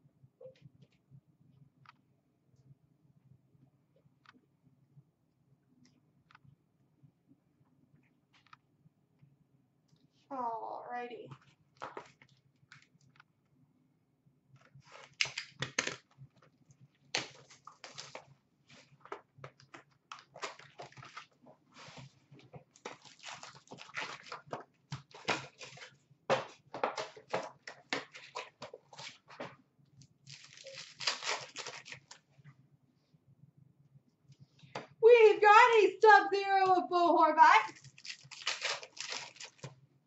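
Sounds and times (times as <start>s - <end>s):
wrapper crinkling and crackling: 17.1s - 18.3s, 22.8s - 25.9s, 30.0s - 32.2s, 37.7s - 39.8s.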